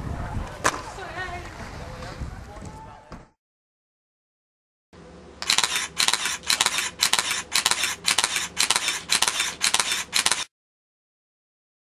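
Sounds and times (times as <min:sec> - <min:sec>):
camera shutter burst: 0:05.4 - 0:10.5.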